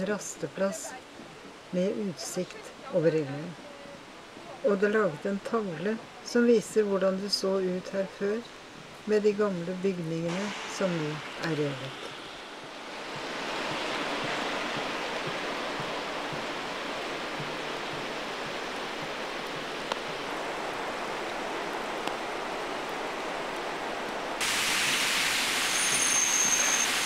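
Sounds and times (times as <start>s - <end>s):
small waterfall splashing: 10.3s - 27.0s
river water rushing: 10.5s - 27.0s.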